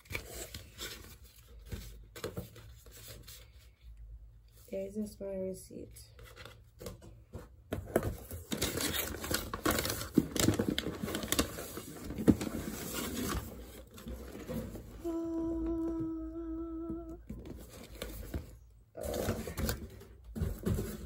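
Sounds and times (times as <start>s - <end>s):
paper rustling and crinkling: 0.0s - 3.9s, 7.9s - 15.1s, 17.3s - 21.0s
woman humming: 15.0s - 17.5s.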